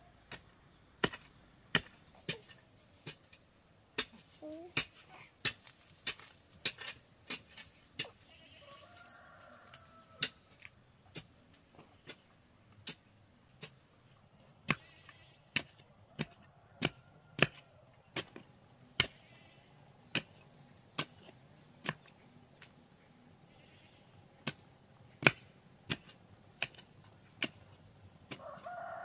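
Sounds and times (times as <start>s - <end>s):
hand tool chopping wood: 0.3s - 8.2s, 20.1s - 20.4s, 25.2s - 28.5s.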